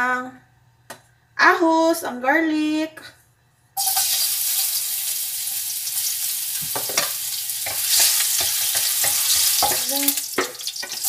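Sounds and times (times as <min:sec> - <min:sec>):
garlic sizzling in hot oil: 0:03.8 - 0:11.0
spatula scraping and tapping pan: 0:06.6 - 0:11.0.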